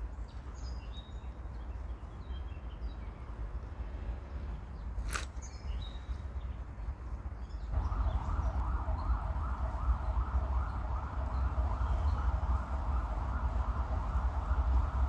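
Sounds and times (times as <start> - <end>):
low rumble: 7.7 - 15.0
emergency siren yelping: 7.8 - 15.0.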